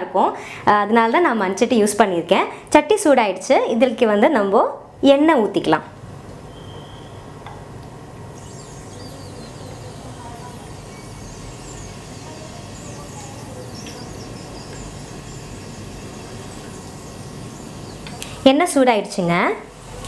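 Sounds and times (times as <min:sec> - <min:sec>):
oil sizzling in a pot: 0:08.3 - 0:18.8.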